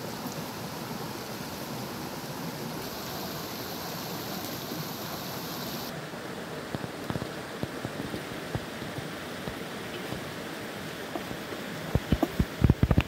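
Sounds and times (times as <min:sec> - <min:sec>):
stream rushing over rocks: 0:00.0 - 0:13.0
short crackles and knocks: 0:11.1 - 0:13.0.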